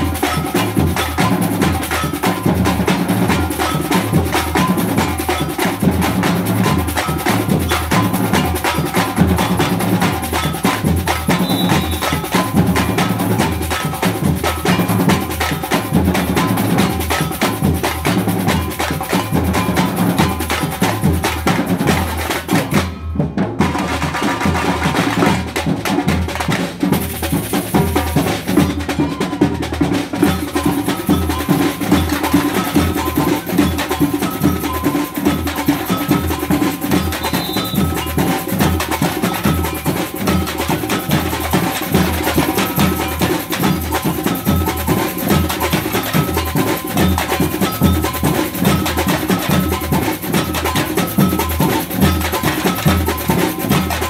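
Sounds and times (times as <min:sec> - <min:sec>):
samba percussion ensemble: 0:00.0 - 0:54.0.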